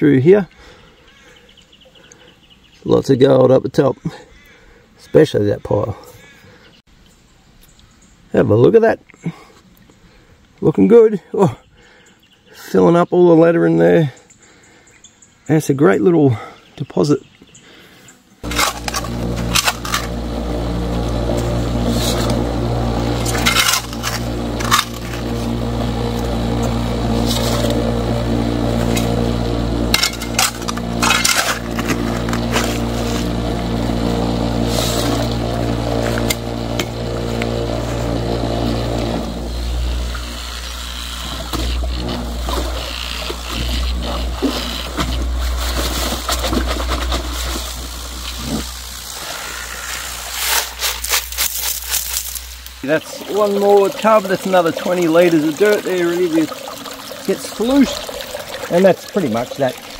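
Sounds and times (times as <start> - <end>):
vibrating motor humming: 18.4 - 59.9.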